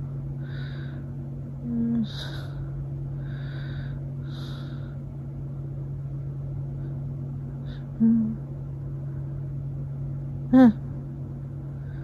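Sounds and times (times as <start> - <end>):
appliance or fan humming: 0.0 - 12.0
sleeping person breathing: 0.4 - 1.2, 1.9 - 5.1.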